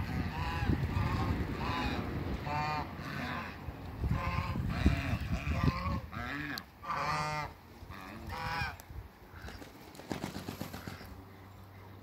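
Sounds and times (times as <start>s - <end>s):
geese honking: 0.0s - 8.8s.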